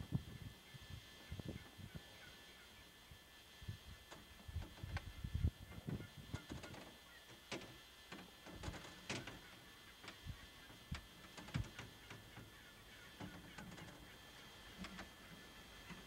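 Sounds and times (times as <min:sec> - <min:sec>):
turkey calls: 0:00.4 - 0:03.0, 0:05.0 - 0:07.5, 0:09.2 - 0:16.0.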